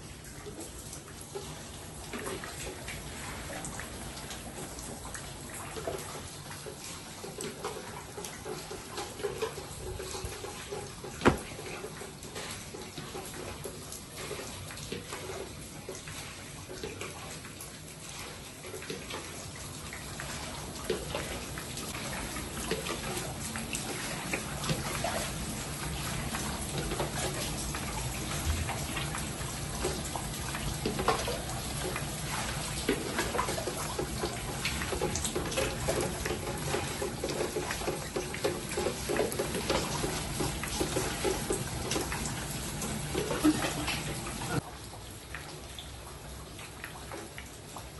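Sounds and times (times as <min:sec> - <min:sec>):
water splashing: 0:00.4 - 0:13.5, 0:20.2 - 0:45.9
container knocks and clicks: 0:11.2 - 0:11.6.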